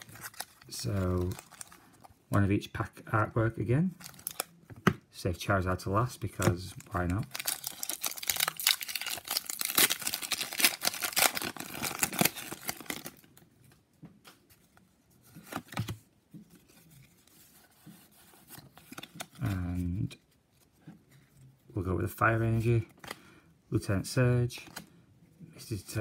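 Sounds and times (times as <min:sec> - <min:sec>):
foil wrapper crinkling and tearing: 0:00.0 - 0:01.8, 0:04.0 - 0:04.5, 0:06.9 - 0:13.3.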